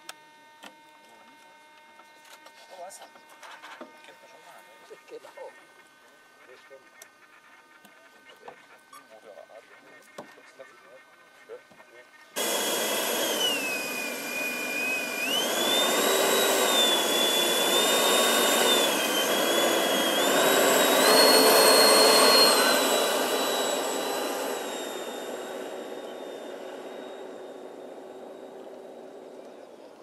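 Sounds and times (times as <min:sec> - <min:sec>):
electric ducted fans whining: 0:12.4 - 0:30.0.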